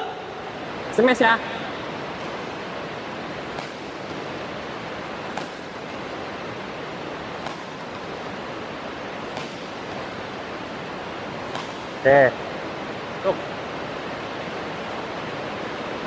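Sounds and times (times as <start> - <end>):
steady hiss: 0.0 - 16.0
racket hitting shuttlecock: 1.7 - 2.8, 3.4 - 12.1.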